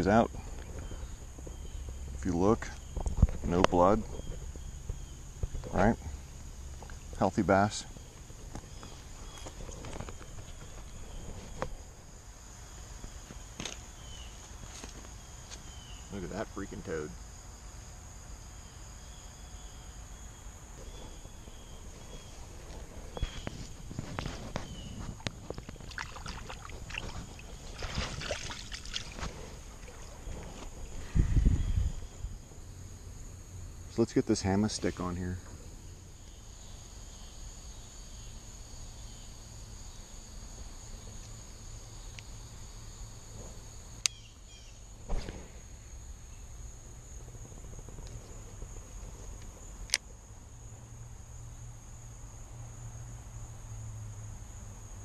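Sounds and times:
insect chirps: 0.0 - 55.0
insects trilling: 0.0 - 55.0
wind rumble: 20.6 - 33.6
handling noise: 20.8 - 31.1.

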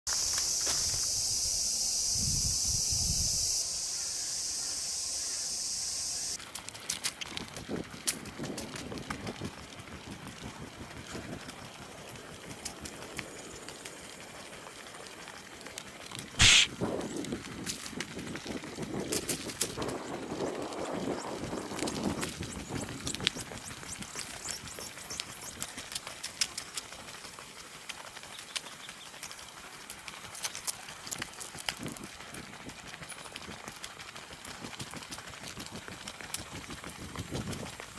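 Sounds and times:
footsteps on pavement: 0.1 - 1.2, 16.4 - 16.7
footsteps on paved path: 0.1 - 1.4, 6.4 - 37.9
high-pitched insect chorus: 0.1 - 6.4, 16.4 - 16.7
steady hiss: 0.1 - 6.4, 16.4 - 16.7.

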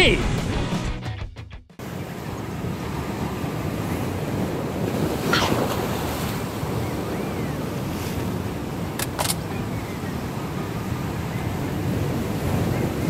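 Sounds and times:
waves washing against rocks: 1.8 - 9.5, 10.2 - 13.0
wind buffeting microphone: 1.8 - 13.0.

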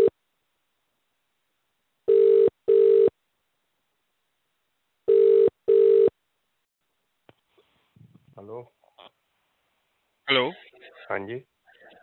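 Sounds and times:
telephone ringback tone: 2.1 - 3.1, 5.1 - 6.1.

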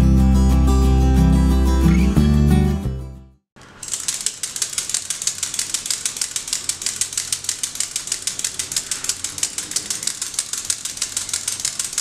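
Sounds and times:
rattle making rapid clicks: 3.6 - 12.0.

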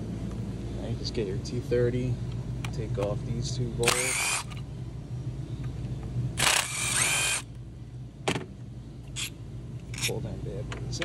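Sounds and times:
steady low hum: 0.0 - 11.0
power driver whirring: 3.8 - 4.6, 6.4 - 7.5.

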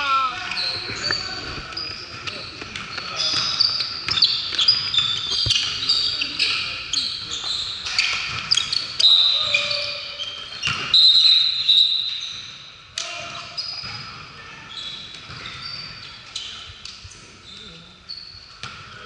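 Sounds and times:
sneakers squeaking on gym floor: 0.0 - 19.0
voices in echoing gym: 0.0 - 19.0
ball bouncing: 0.5 - 6.0, 15.1 - 15.9, 18.6 - 19.0.

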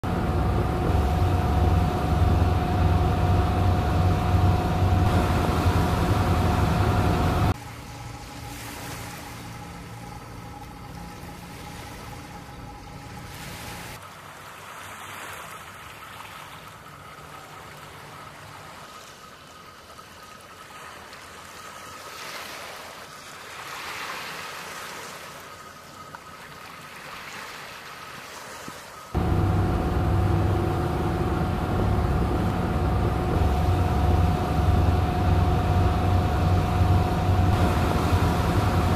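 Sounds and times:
boat engine droning: 0.0 - 14.0, 29.2 - 38.9
water lapping: 0.0 - 38.9.

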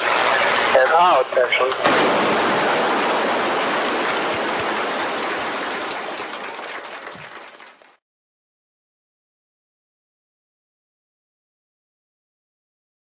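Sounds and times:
crowd applauding: 3.6 - 8.0.

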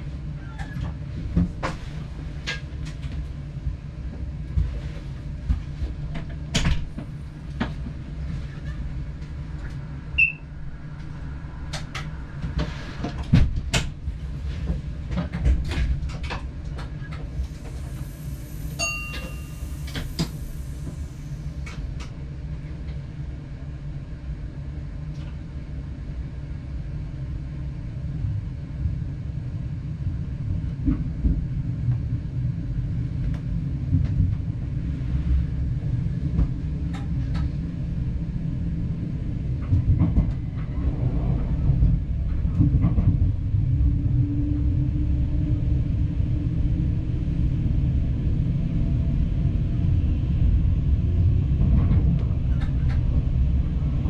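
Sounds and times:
train low rumble: 0.0 - 54.0
short high tones: 18.2 - 20.5.

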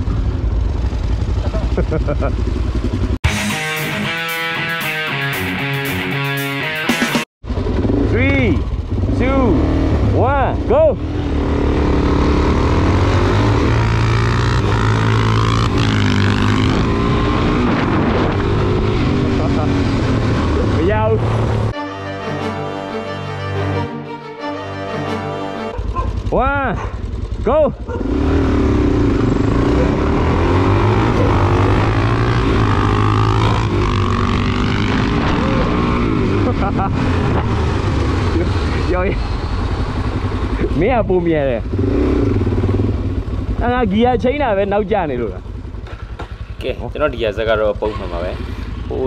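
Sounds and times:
motorcycle engines accelerating: 0.0 - 3.2, 7.4 - 21.8, 25.6 - 49.0.

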